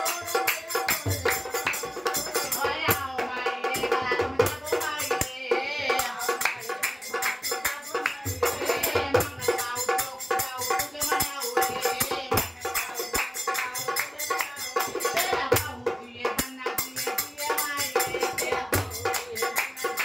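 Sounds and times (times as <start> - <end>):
hand drum folk beat: 0.0 - 20.0
jingling percussion: 0.0 - 20.0
person singing: 0.0 - 20.0.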